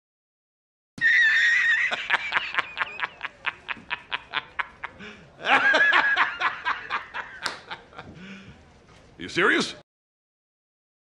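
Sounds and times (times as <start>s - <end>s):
man laughing loudly: 1.0s - 8.1s.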